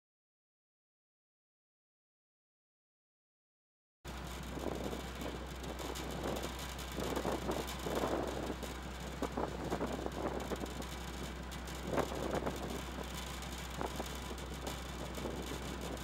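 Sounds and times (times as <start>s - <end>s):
ship engine hum: 4.1s - 16.0s
gusty wind and sea noise: 4.5s - 10.9s, 11.8s - 16.0s.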